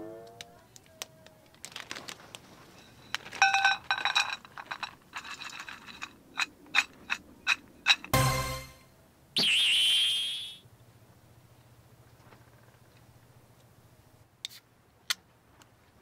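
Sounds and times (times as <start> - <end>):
nuts clattering into steel cup: 3.1 - 8.1.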